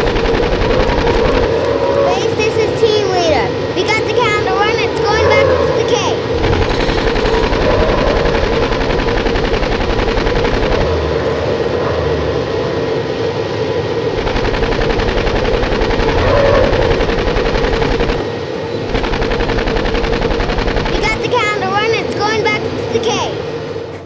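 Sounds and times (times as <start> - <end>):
rapid machine-gun fire: 0.0 - 2.9, 3.8 - 11.5, 14.2 - 22.4.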